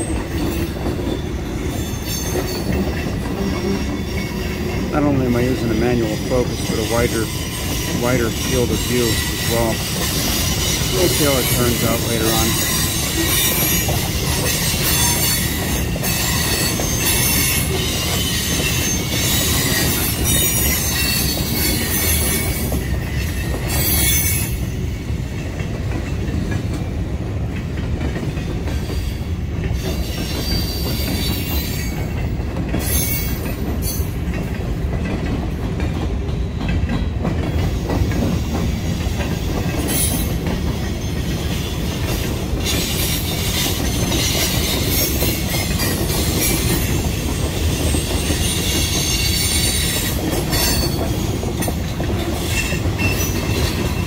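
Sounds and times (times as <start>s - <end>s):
high wheel squeal: 0.0s - 24.8s, 29.8s - 32.2s, 32.8s - 34.2s, 39.2s - 54.0s
train wheels rumbling on rail: 0.0s - 54.0s.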